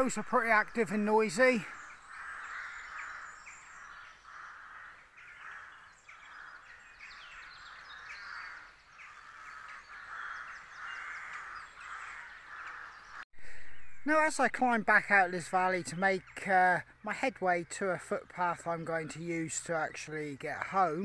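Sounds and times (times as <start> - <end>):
small birds chirping: 0.0 - 21.0
crows cawing: 1.2 - 14.0.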